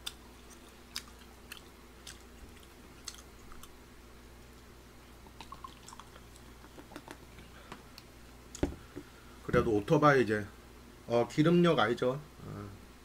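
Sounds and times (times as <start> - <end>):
faint chewing with mouth clicks: 0.0 - 3.8, 4.4 - 8.6
beer pouring into a glass: 5.4 - 6.1.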